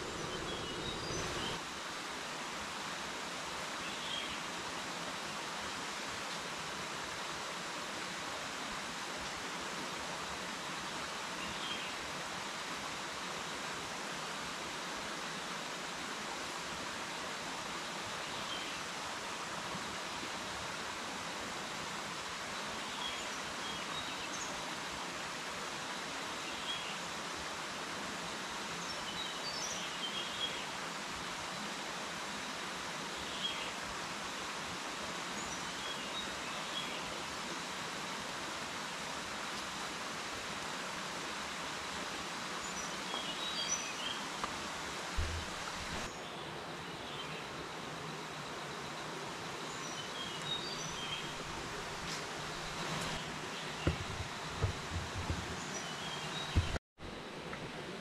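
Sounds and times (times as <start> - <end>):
river running over rocks: 0.0 - 28.9, 29.8 - 46.8, 47.5 - 58.0
soft thump: 45.2 - 46.1, 53.8 - 55.6, 56.5 - 56.8.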